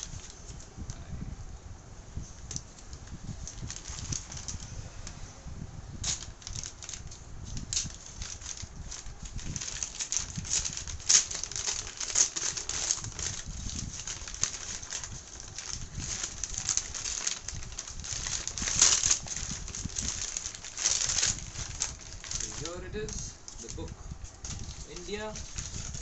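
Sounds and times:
paper packaging crinkling: 0:00.0 - 0:00.8, 0:02.4 - 0:05.1, 0:06.0 - 0:26.0.

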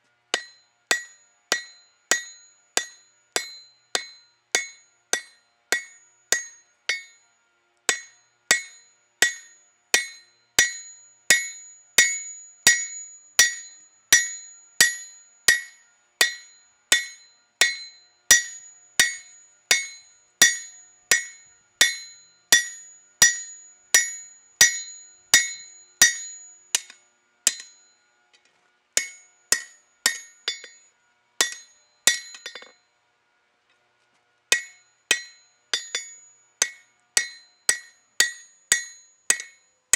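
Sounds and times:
hammer ringing on anvil: 0:00.4 - 0:07.2, 0:07.9 - 0:28.1, 0:29.0 - 0:32.9, 0:34.5 - 0:39.7.

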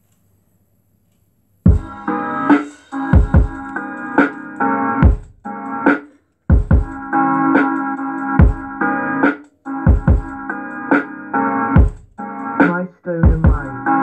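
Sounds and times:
electronic music through subwoofers: 0:01.7 - 0:14.0.

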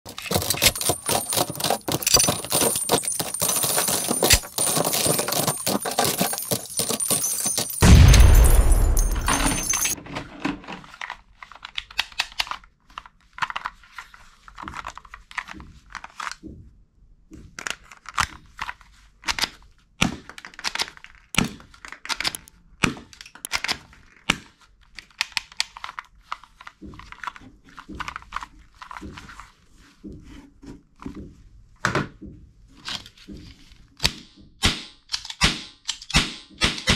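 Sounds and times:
toy pistols clattering: 0:00.1 - 0:10.0
deep boom: 0:07.8 - 0:09.6.

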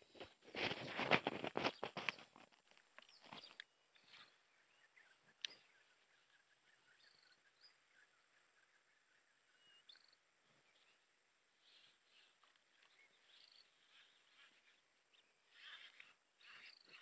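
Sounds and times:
faint bird chirps: 0:03.0 - 0:17.0.

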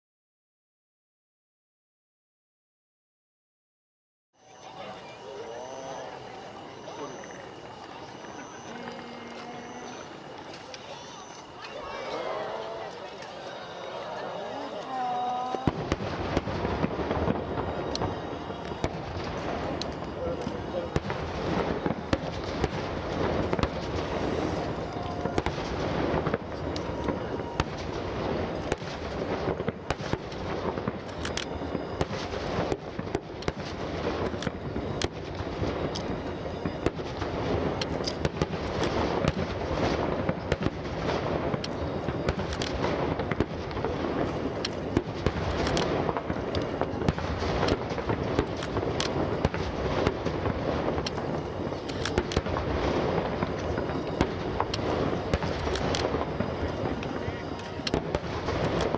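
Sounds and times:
fireworks booming and crackling: 0:04.5 - 0:58.9.

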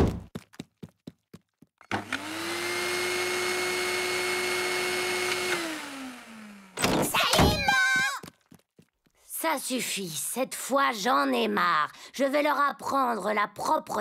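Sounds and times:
vacuum cleaner motor whine: 0:01.9 - 0:06.8.

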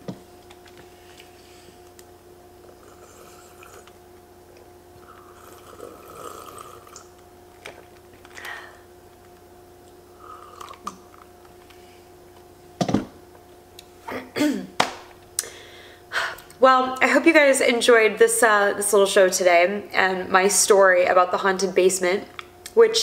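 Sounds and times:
steady low hum: 0:00.0 - 0:23.0
sipping and swallowing: 0:02.7 - 0:04.0, 0:05.0 - 0:07.2, 0:10.3 - 0:11.3.

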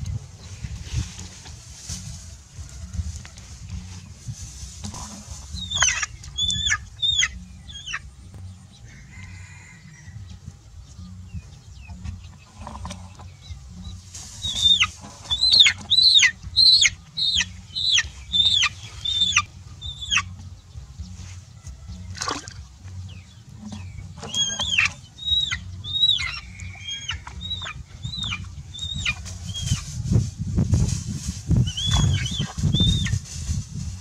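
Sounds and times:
chick peeping in distress: 0:05.5 - 0:08.0, 0:14.4 - 0:20.4, 0:23.6 - 0:30.0, 0:31.6 - 0:33.5.

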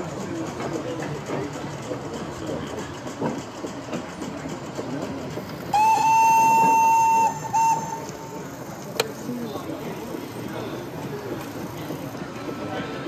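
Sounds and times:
exhibition hall background noise: 0:00.0 - 0:13.0
model locomotive whistle: 0:05.7 - 0:08.7.

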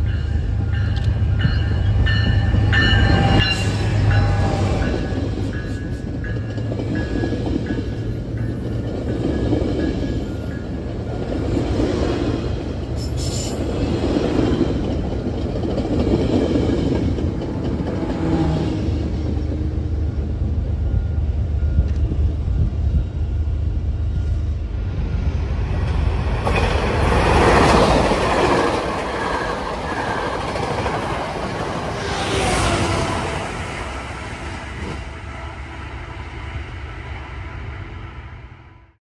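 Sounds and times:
train wheels rumbling on track: 0:00.0 - 0:39.0
train wheel squeal: 0:12.9 - 0:13.8, 0:26.5 - 0:35.1.

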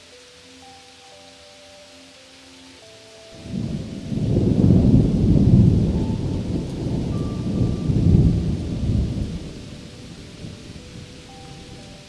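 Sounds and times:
heavy rain: 0:00.0 - 0:12.0
rolling thunder: 0:03.4 - 0:12.0.

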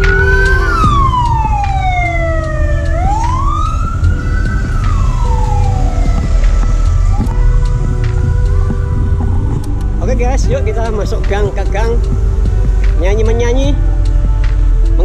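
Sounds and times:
siren wailing: 0:00.0 - 0:09.6
road traffic passing: 0:00.0 - 0:15.0.

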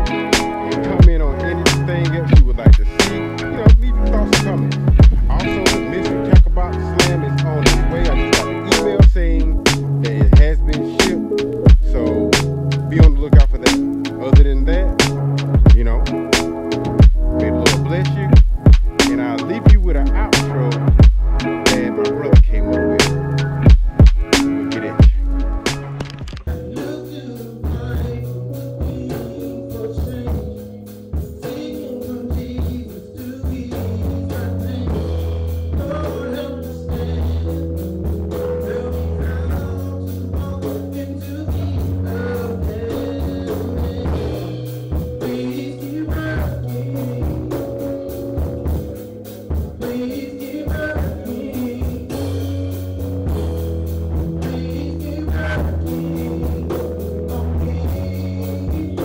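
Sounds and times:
man singing: 0:00.0 - 0:53.4, 0:54.2 - 0:59.0
electronic keyboard music: 0:00.0 - 0:59.0.

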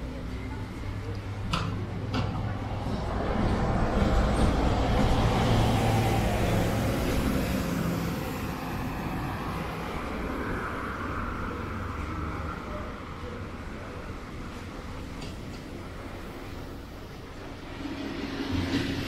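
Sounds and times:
steady traffic noise: 0:00.0 - 0:19.0
vehicle passing close by: 0:02.4 - 0:13.2.

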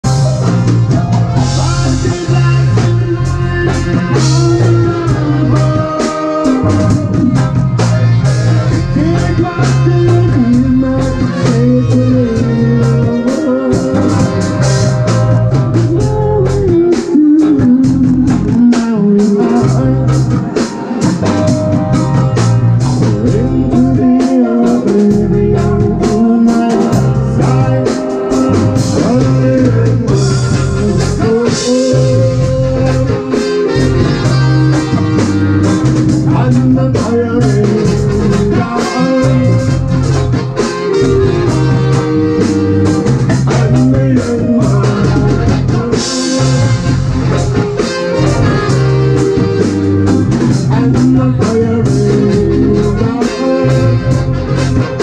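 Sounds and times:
drum kit steady beat: 0:00.0 - 0:55.0
electric guitar: 0:00.0 - 0:55.0
saxophone: 0:00.0 - 0:55.0
trumpet: 0:00.0 - 0:55.0
man singing into microphone: 0:01.3 - 0:21.8, 0:22.8 - 0:55.0.

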